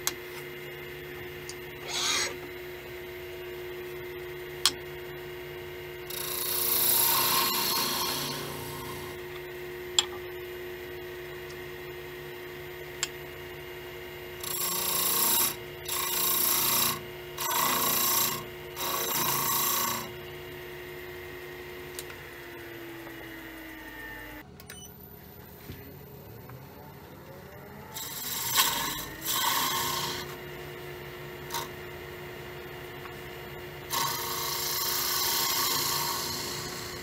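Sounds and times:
wood lathe humming: 6.0s - 9.2s, 14.4s - 24.4s, 27.9s - 37.0s
turning tool scraping wood: 6.1s - 9.1s, 14.4s - 20.1s, 28.0s - 30.4s, 33.9s - 37.0s.

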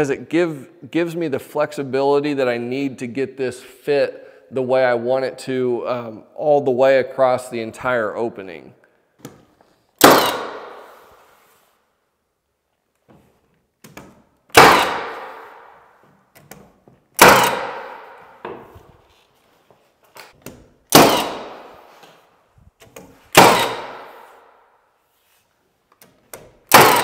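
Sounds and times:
nail gun shots into wood: 10.0s - 11.0s, 13.9s - 15.8s, 17.2s - 18.2s, 20.5s - 21.8s, 23.3s - 24.3s, 26.4s - 27.0s.

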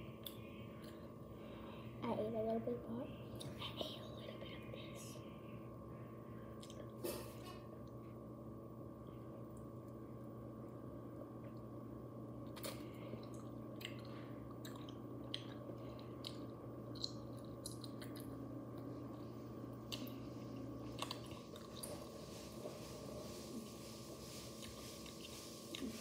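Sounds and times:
faint steady hum: 0.0s - 26.0s
person chewing and crunching: 12.4s - 22.2s.

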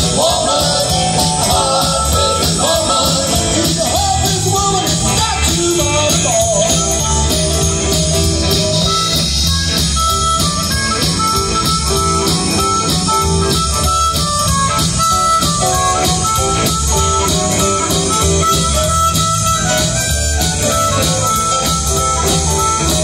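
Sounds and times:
person singing: 0.0s - 7.0s
blues rock band playing: 0.0s - 23.0s
harmonica notes: 0.0s - 23.0s.

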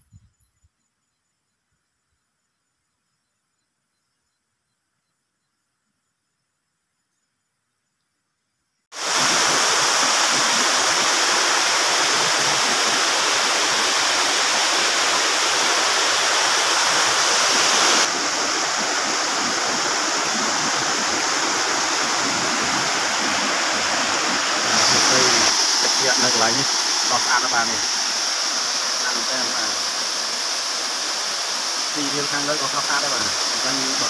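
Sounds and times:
stream rushing over rocks: 9.0s - 34.0s.

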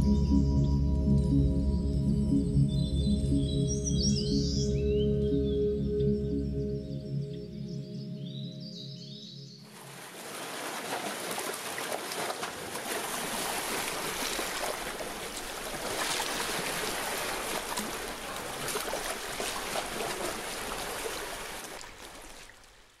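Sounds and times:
waves washing over rocks: 9.8s - 22.5s.

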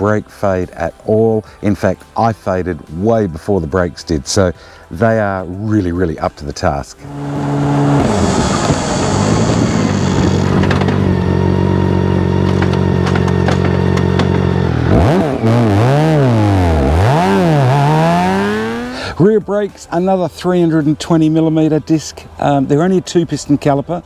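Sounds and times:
wind rush: 7.0s - 10.9s
motorcycle engine cruising: 7.0s - 19.2s.

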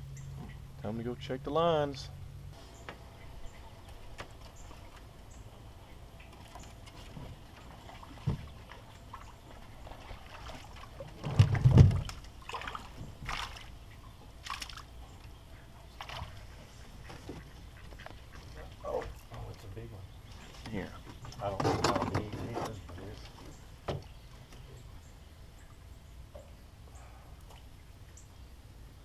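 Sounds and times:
water sloshing against boat: 2.7s - 27.8s
sharp splashes: 6.2s - 15.2s, 15.9s - 16.5s.

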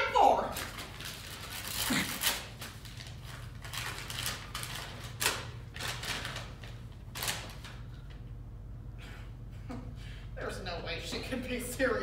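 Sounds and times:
low steady hum: 0.0s - 12.0s
paper rustling: 0.5s - 8.1s.

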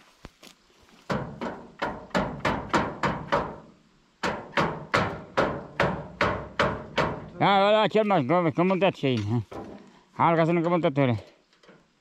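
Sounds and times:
banging on metal tailgate: 1.1s - 7.4s, 9.5s - 9.8s.

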